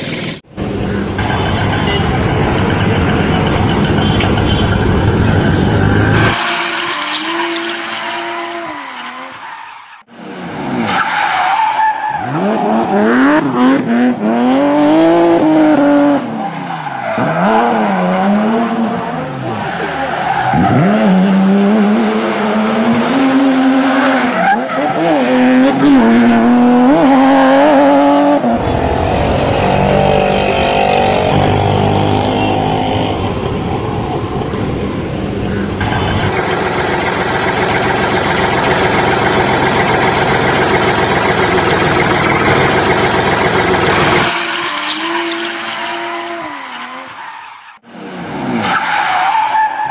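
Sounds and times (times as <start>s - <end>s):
vehicle engine revving: 17.1s - 33.8s, 35.8s - 47.0s.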